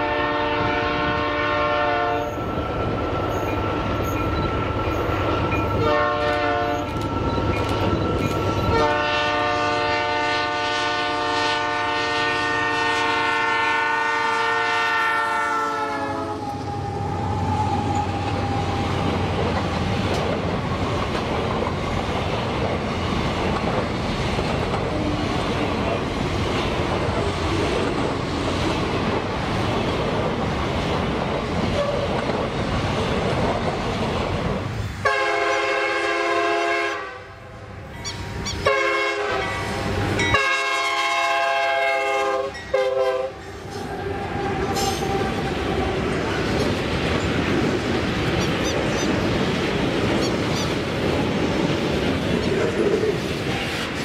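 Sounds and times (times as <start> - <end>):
locomotive air horn blasts: 0.0 - 2.4, 5.8 - 6.9, 8.7 - 17.0, 35.0 - 37.5, 38.6 - 45.3
wagons rumbling over rails: 0.0 - 54.0.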